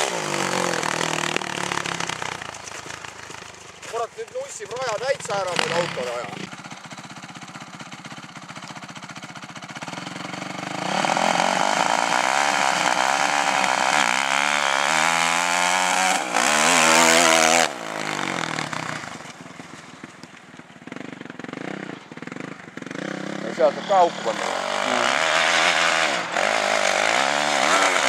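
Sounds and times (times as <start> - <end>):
dirt bike engine revving: 0.0 - 20.1, 20.8 - 28.0.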